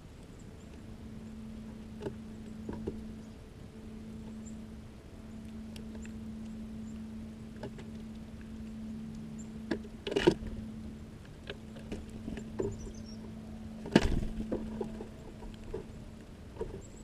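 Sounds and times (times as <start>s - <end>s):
steady low hum: 0.0s - 17.0s
faint high bird chirps: 0.3s - 9.8s, 12.4s - 13.8s.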